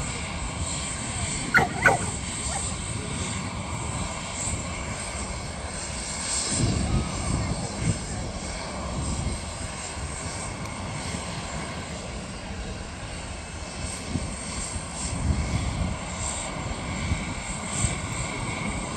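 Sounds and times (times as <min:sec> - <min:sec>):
faint high aircraft whine: 0:00.0 - 0:18.9.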